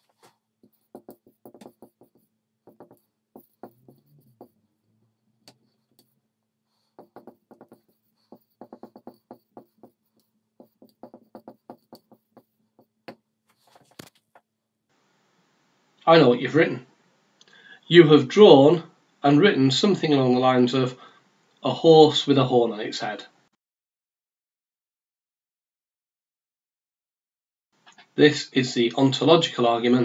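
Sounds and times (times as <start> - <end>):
marker squeaking on whiteboard: 0.0 - 4.8, 5.4 - 14.4.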